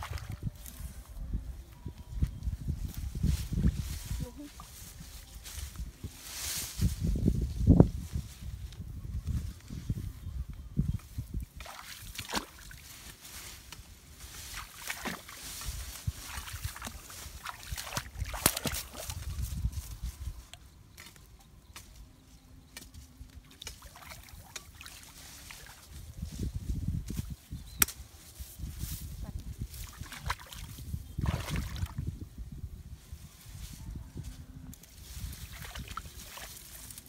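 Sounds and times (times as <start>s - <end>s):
legs wading through muddy water: 0.0s - 0.4s, 11.5s - 19.6s, 23.4s - 26.1s, 29.5s - 32.0s, 35.2s - 37.0s
grass and branches rustling: 0.0s - 37.0s.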